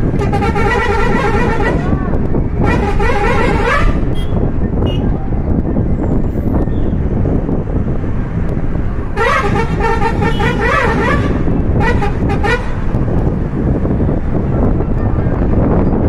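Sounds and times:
road noise: 0.0 - 16.0
vehicle engine rumble: 0.0 - 16.0
musical car horn tune: 0.1 - 2.0, 2.6 - 5.1, 9.2 - 13.0.

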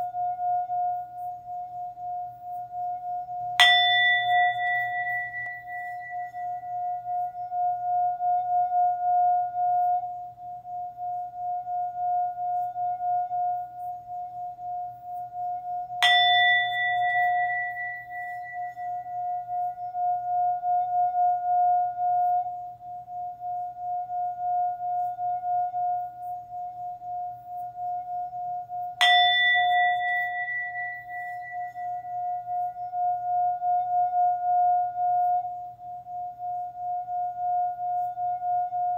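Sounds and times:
singing bowl tone: 0.0 - 38.9
singing bowl strike ringing: 3.4 - 13.9, 15.9 - 22.5, 28.9 - 38.9.

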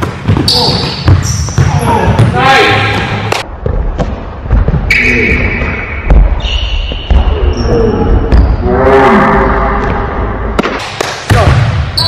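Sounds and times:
sneaker squeaks: 0.0 - 3.2, 4.8 - 8.6
basketball bouncing on hardwood: 0.0 - 4.8.

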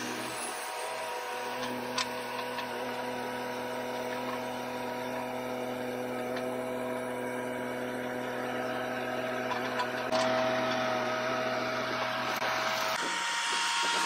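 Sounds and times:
diesel engine running: 0.0 - 14.0
hydraulic pump humming: 0.0 - 14.0.

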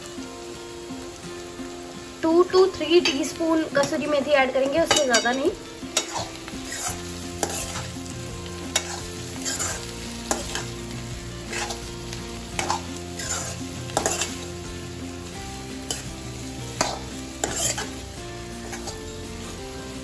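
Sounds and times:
potatoes sizzling in oil: 0.0 - 20.0
steel spoon scraping a pan: 4.9 - 11.9, 12.6 - 14.6, 15.6 - 19.5.

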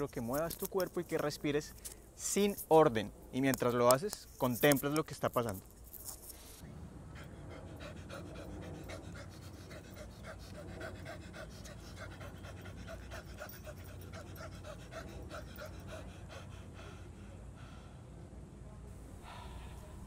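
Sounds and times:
man panting rapidly: 7.0 - 18.2, 19.1 - 20.0.

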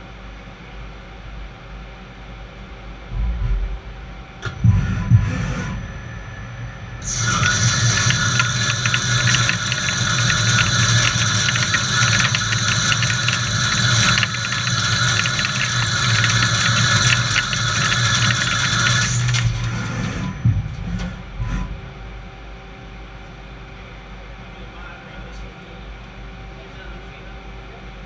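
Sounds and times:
low machine hum: 0.0 - 28.0
lathe cutting metal hiss: 7.0 - 20.3.

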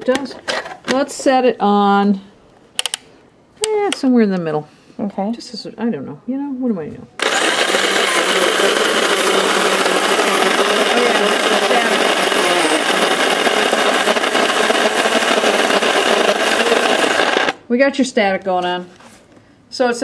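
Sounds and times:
coffee grinder grinding beans: 7.2 - 17.6.

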